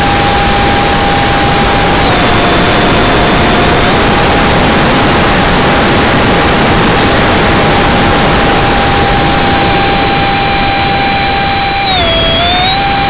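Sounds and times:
electric fan motor whine: 0:00.0 - 0:13.0
loud rush of air: 0:01.1 - 0:12.8.

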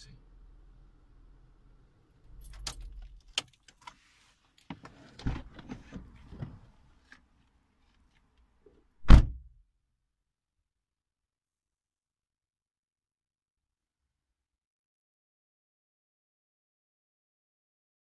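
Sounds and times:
knocks and rustles in car: 0:04.7 - 0:06.6
car door shutting thud: 0:09.0 - 0:09.5.

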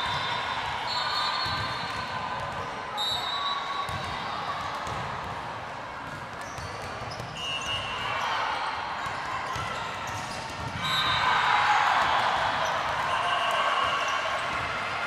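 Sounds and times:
sneakers squeaking on gym floor: 0:00.0 - 0:04.2, 0:06.1 - 0:08.3
murmur of spectators: 0:00.0 - 0:15.0.

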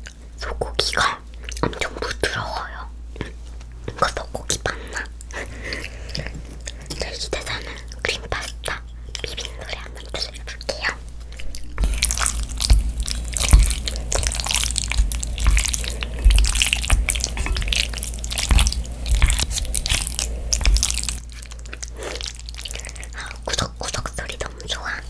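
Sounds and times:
chopsticks stirring wet pasta: 0:11.8 - 0:24.1.

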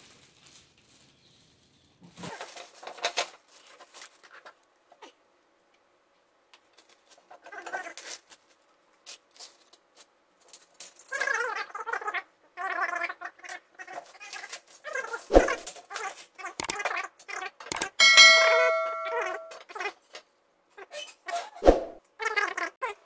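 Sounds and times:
plastic wrapping rustling: 0:00.0 - 0:04.7.

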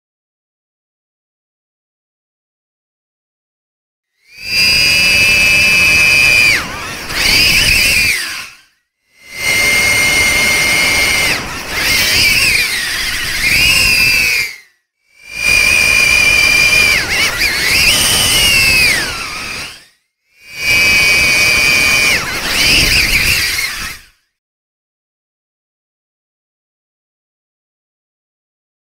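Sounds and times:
drone motors whining: 0:04.2 - 0:24.2.

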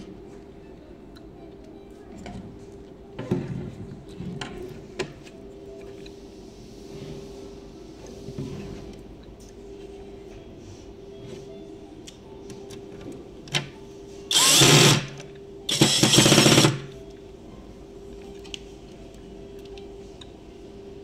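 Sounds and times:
cordless drill driving a screw: 0:14.3 - 0:15.1, 0:15.7 - 0:16.9.

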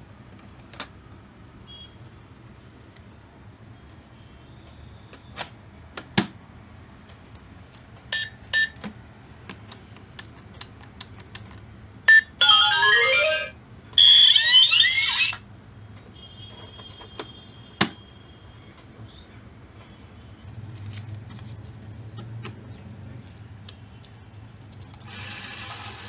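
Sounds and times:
short keypad beeps: 0:12.1 - 0:15.4.

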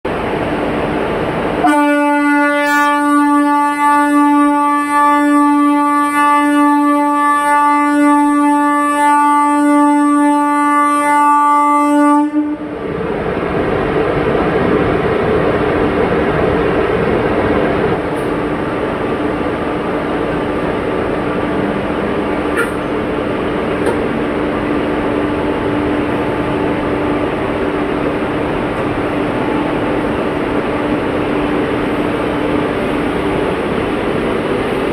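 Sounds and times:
train rumbling past: 0:00.1 - 0:34.9
locomotive horn blast: 0:01.6 - 0:12.7.

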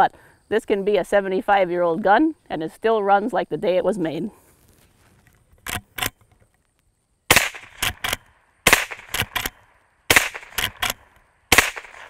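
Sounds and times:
rifle shots: 0:07.3 - 0:12.0.

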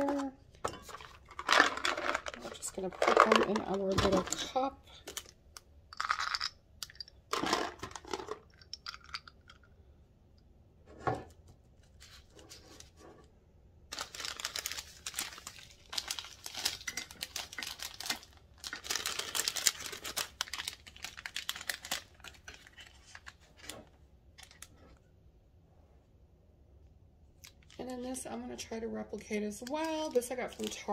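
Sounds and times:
cellophane bags crinkling: 0:00.9 - 0:05.4, 0:13.9 - 0:23.8, 0:30.0 - 0:30.9.

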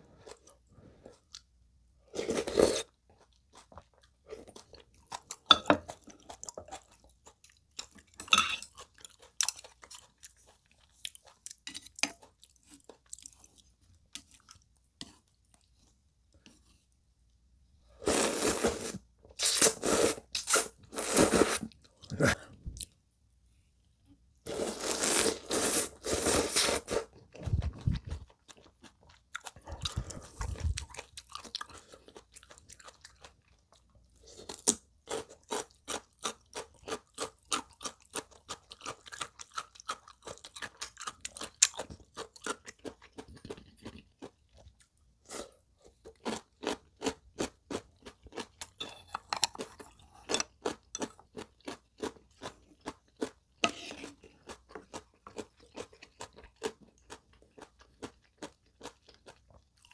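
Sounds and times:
loud noodle slurping: 0:18.0 - 0:22.3, 0:24.5 - 0:28.0
wet chewing: 0:27.1 - 0:59.9.

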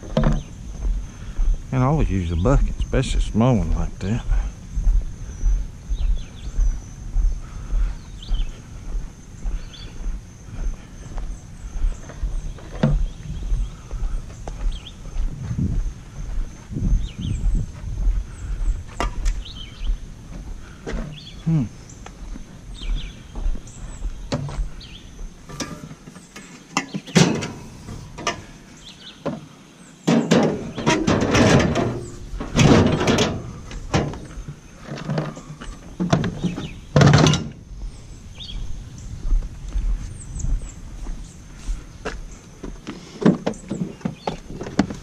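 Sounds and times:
objects knocking and clattering: 0:25.5 - 0:28.5, 0:30.1 - 0:37.6.

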